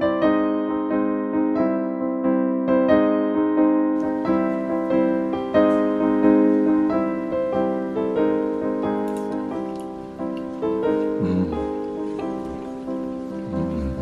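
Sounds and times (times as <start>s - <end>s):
piano melody: 0.0s - 14.0s.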